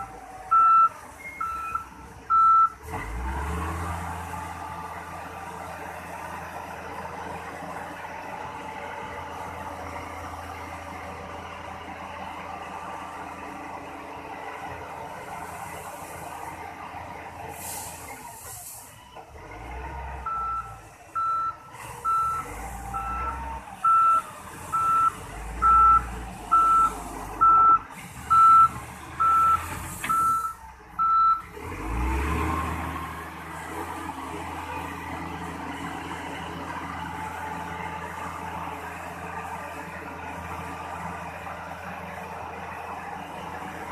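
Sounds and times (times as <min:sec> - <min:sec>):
reversing alarm beeping: 0:00.0 - 0:02.8, 0:20.2 - 0:31.5
diesel engine revving: 0:00.0 - 0:43.9.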